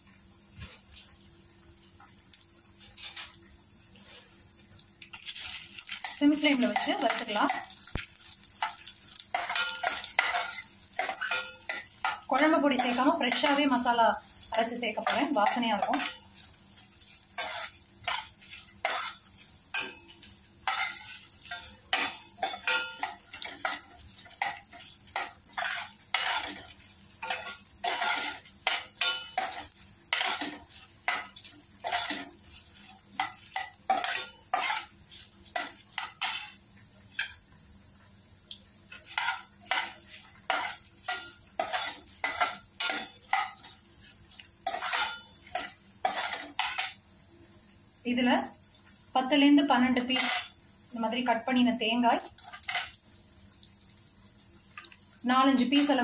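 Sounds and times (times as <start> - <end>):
spices roasting in oil: 0.0 - 56.0
steel spoon scraping a pan: 5.2 - 37.4, 38.9 - 47.0, 49.8 - 50.6, 52.4 - 53.0.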